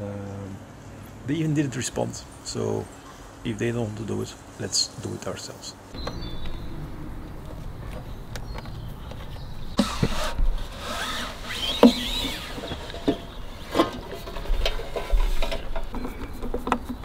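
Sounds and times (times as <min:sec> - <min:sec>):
hard plastic rubbing and scraping: 0:07.8 - 0:17.0.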